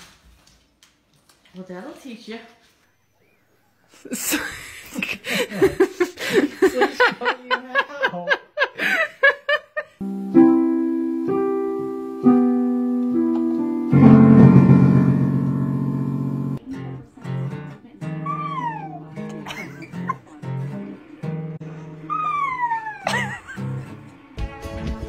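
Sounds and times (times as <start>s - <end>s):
piano chords: 10.0s - 16.7s.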